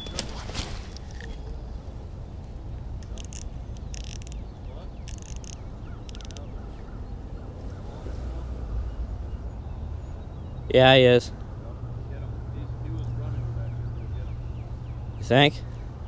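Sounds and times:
fishing reel drag clicking: 3.0 - 4.4, 5.1 - 6.4.

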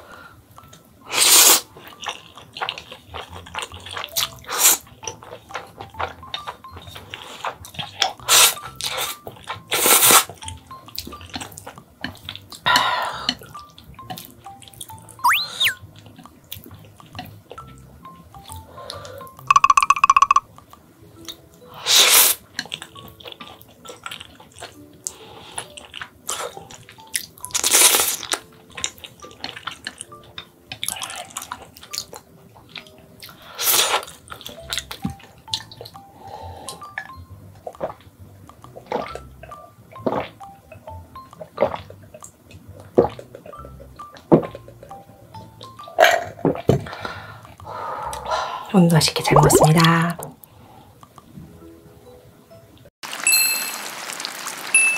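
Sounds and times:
soft background music: 0.0 - 52.9
noodles slurped: 1.1 - 4.9, 7.0 - 10.4, 33.3 - 35.0.

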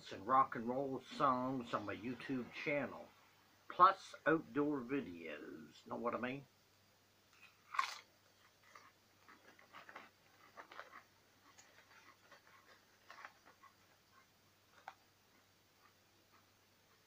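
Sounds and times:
man crunching potato chips: 7.4 - 13.4
chip bag crinkling: 7.4 - 13.8.

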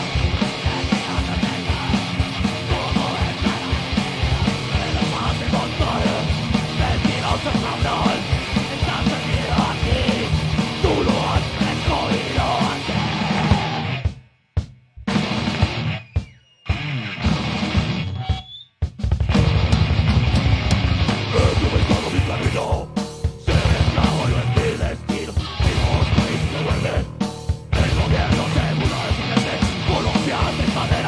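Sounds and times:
rock band playing live: 0.0 - 14.2, 15.0 - 18.4, 19.0 - 31.0
fast kick drum beats: 0.0 - 16.3, 18.8 - 31.0
person yelling vocals: 0.9 - 13.9, 21.3 - 22.9, 27.8 - 31.0.

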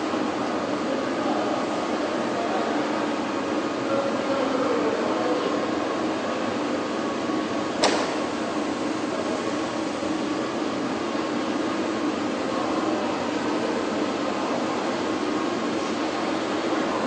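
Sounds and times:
factory machinery droning: 0.0 - 17.0.

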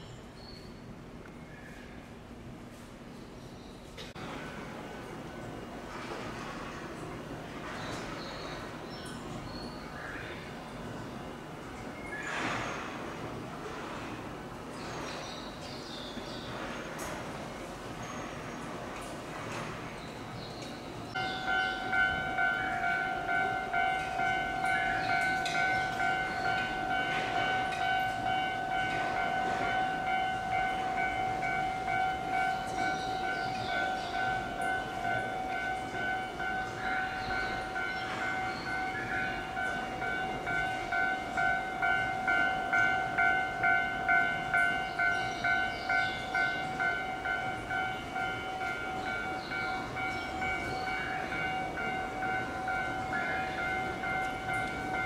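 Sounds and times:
low rail yard noise: 0.0 - 55.0.

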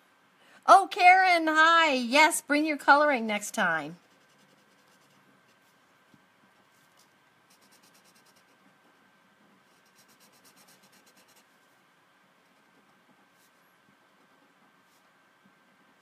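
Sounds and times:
felt-tip marker scratching on paper: 4.0 - 5.7, 7.5 - 8.7, 9.7 - 11.5.

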